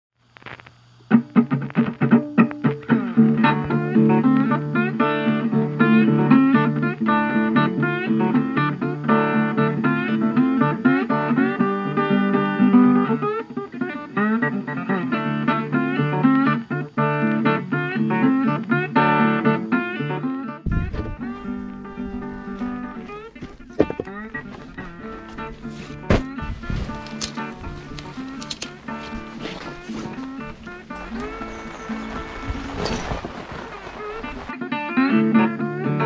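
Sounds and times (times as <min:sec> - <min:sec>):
bluesy guitar tune: 0:00.4 - 0:36.0.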